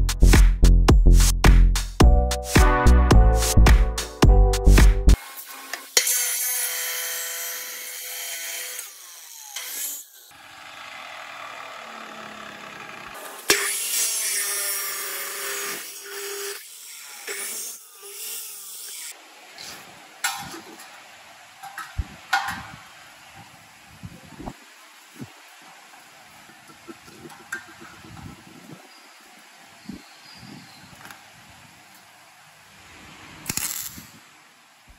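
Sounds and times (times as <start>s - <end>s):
chop saw grinding through steel: 5.2s - 19.2s.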